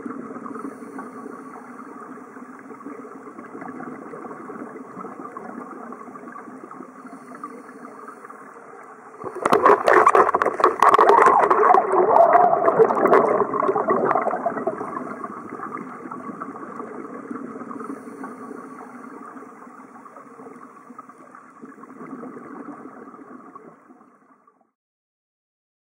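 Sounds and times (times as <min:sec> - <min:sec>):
low underwater drone: 0:00.0 - 0:24.7
diver's exhaled bubbles bubbling: 0:02.7 - 0:06.9, 0:08.9 - 0:24.2.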